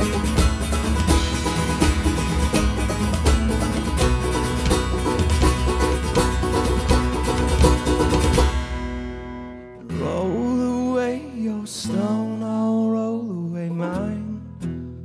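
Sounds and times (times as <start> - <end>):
held chords: 0.0 - 11.2
folk-rock band playing: 0.0 - 12.2.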